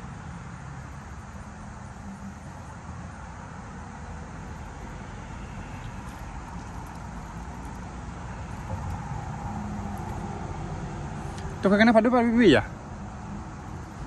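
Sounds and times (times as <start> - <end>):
road traffic hum on a bridge: 0.0 - 14.0.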